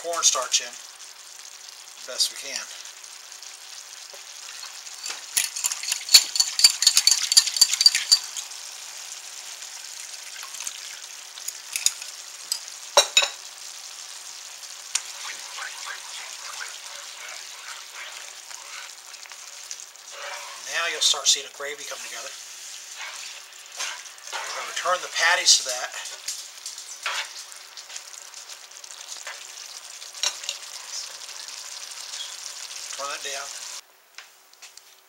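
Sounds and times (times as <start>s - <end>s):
gravy simmering: 0.1s - 33.8s
spatula scraping pan: 15.0s - 21.1s, 21.9s - 25.3s, 26.9s - 27.5s.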